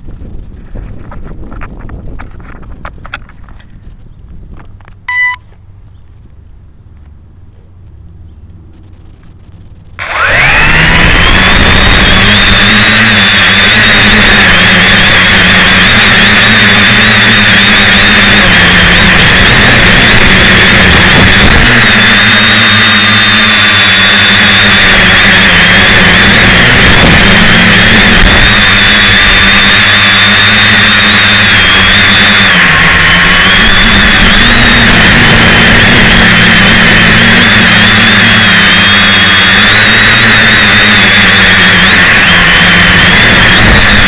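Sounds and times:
drone motors whining: 5.1s - 5.6s, 7.0s - 44.0s
thin high tone: 5.1s - 5.6s.

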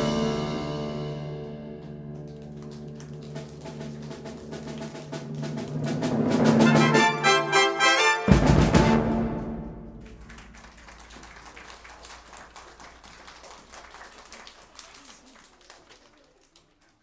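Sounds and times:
timpani final hit: 0.0s - 1.8s, 4.8s - 10.4s
children clapping: 1.8s - 6.3s, 10.0s - 17.0s
brass and percussion ensemble: 3.3s - 10.7s.

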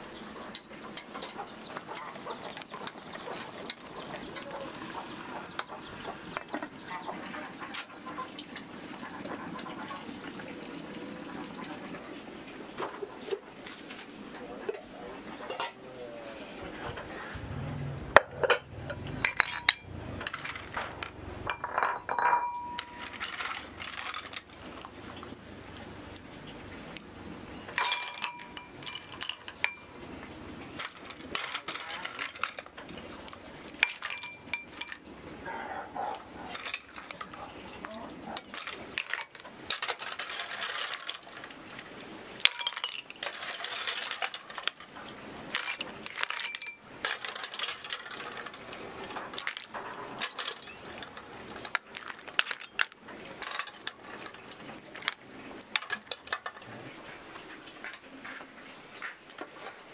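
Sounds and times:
snail shells clattering into bowls: 0.0s - 12.0s, 18.1s - 35.4s, 36.1s - 59.9s
metal ladle clinking on pot: 18.2s - 20.6s, 21.5s - 23.2s, 27.7s - 29.9s, 33.8s - 35.0s.

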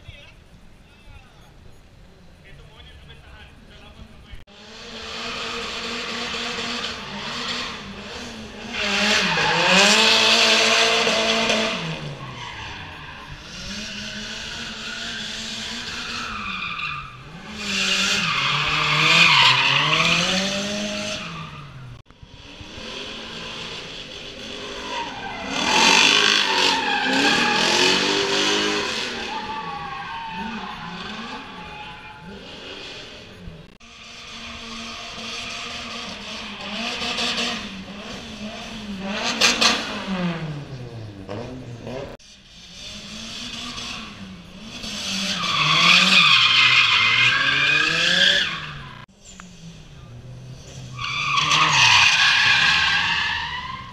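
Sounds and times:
car engines revving: 0.0s - 53.9s
tyre squeal: 5.2s - 22.0s, 24.4s - 37.9s, 43.5s - 49.4s, 50.6s - 53.9s.

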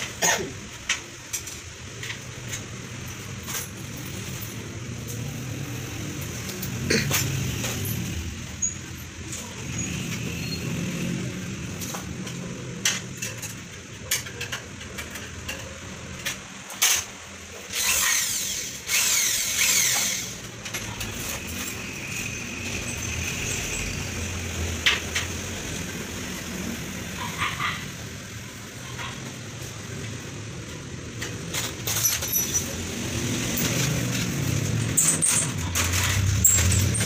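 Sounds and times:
clinks of hardware and tools: 0.0s - 5.3s, 6.2s - 10.6s, 11.7s - 17.2s, 30.0s - 37.0s
cordless drill running: 17.7s - 20.4s.

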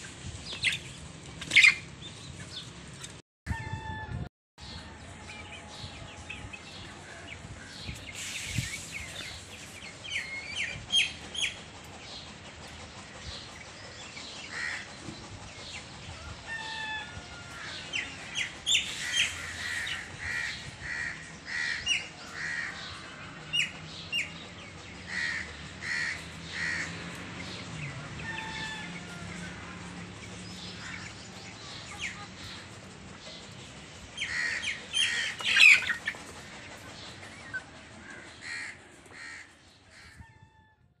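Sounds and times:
chicks peeping: 26.1s - 37.7s.

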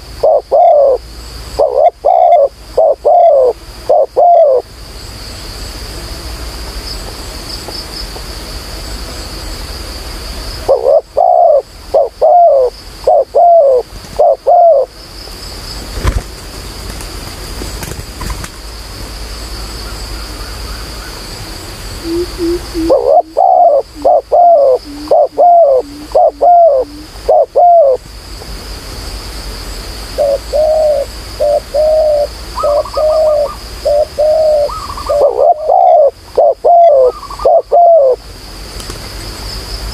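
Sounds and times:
dove cooing: 0.0s - 1.0s, 1.6s - 4.6s, 10.7s - 14.9s, 22.0s - 28.0s, 30.2s - 38.2s
high-pitched whine: 19.1s - 28.1s.

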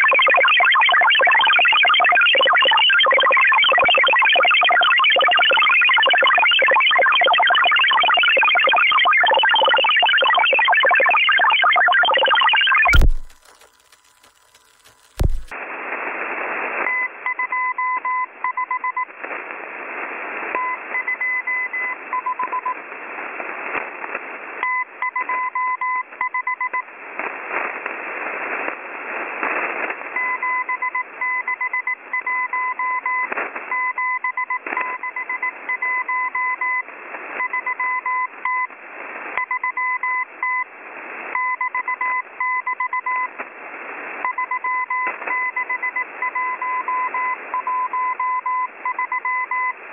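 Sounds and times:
morse code beeps: 0.0s - 15.5s
radio static hiss: 0.0s - 16.8s.

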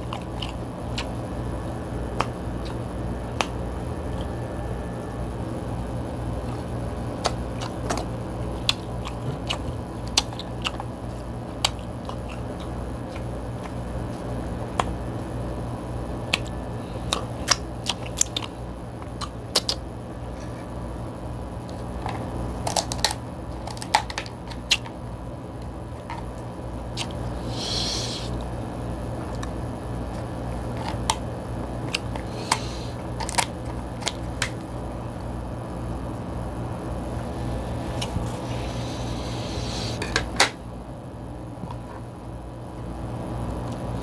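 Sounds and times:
crab legs cracking: 0.0s - 1.2s, 7.1s - 15.0s, 16.3s - 19.8s, 21.8s - 25.0s, 26.0s - 27.7s, 30.2s - 34.6s
steady low hum: 0.0s - 44.0s.

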